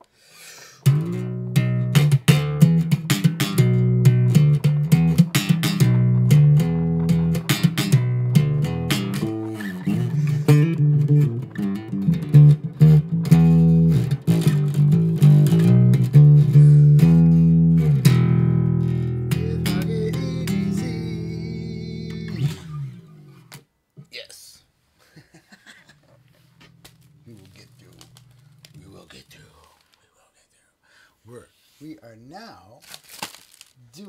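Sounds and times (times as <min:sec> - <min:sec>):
plucked guitar music: 0:00.8 - 0:23.7, 0:26.0 - 0:29.0
bass line: 0:00.9 - 0:23.6.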